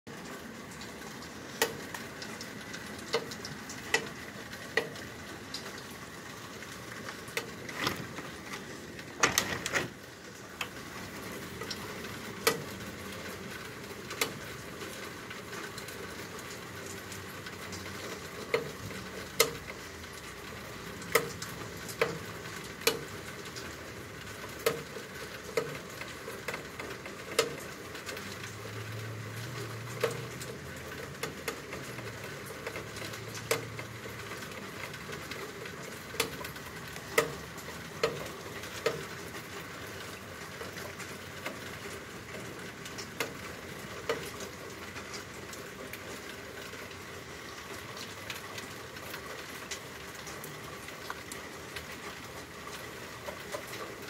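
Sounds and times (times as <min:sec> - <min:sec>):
drips tapping: 0:00.1 - 0:09.9, 0:24.3 - 0:46.3
rain hissing: 0:00.1 - 0:54.0.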